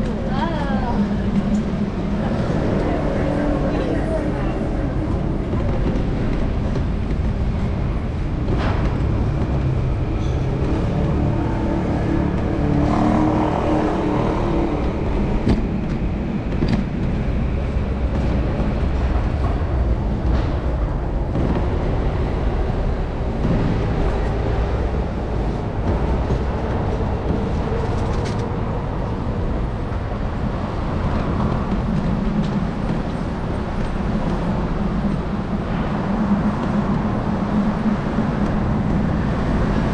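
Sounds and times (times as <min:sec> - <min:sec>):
traffic rumble: 0:00.0 - 0:39.9
wind on microphone: 0:00.0 - 0:39.9.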